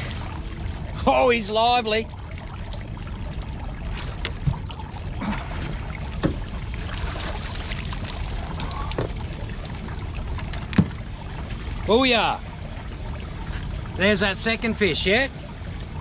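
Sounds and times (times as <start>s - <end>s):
low rumble of water and wind: 0.0s - 16.0s
water splashing around boat: 0.0s - 16.0s
knocks against boat: 5.6s - 6.5s, 10.7s - 11.0s.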